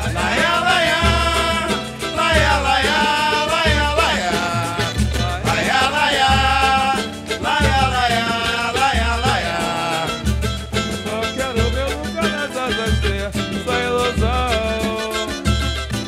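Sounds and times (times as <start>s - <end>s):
deep drum beating: 0.0s - 1.7s
person singing: 0.0s - 10.4s
pandeiro: 0.0s - 16.0s
strummed cavaquinho: 0.0s - 16.0s.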